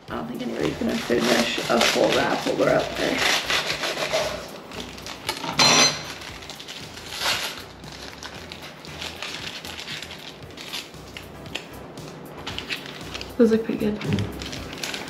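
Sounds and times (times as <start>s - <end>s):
dishes and utensils clattering: 1.1s - 6.3s.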